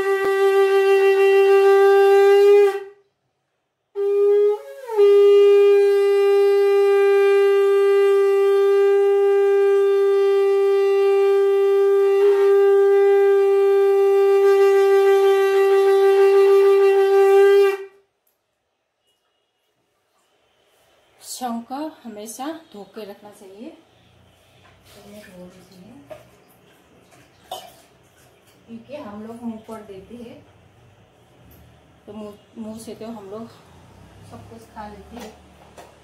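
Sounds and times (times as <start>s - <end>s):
conch shell blasts: 0.0s - 3.0s, 3.9s - 18.1s.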